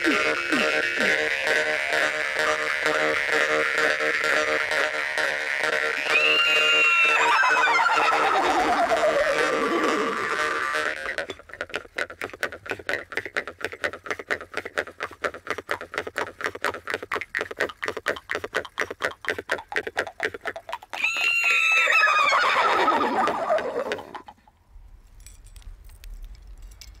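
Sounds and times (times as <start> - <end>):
jaw harps strumming: 0.0 - 6.5
loud neigh-like call: 6.0 - 10.4, 21.0 - 24.1.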